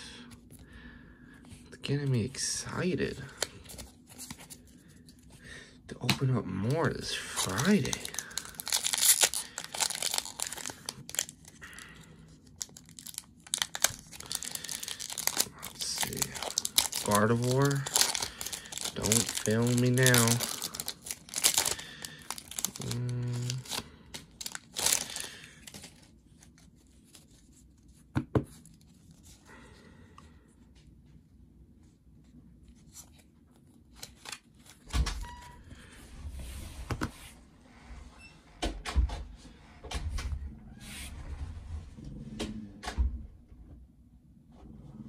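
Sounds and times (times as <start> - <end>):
foil wrapper tearing and crinkling: 7.2 - 26.1.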